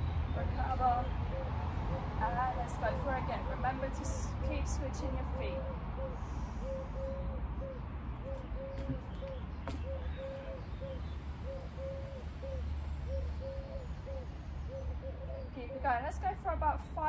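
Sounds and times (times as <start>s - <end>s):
dove cooing: 0.9s - 3.2s, 5.4s - 15.6s.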